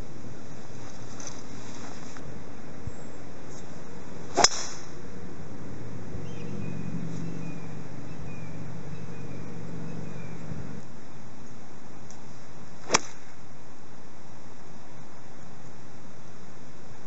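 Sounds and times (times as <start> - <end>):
golf club striking ball: 4.3 - 5.0, 12.8 - 13.4.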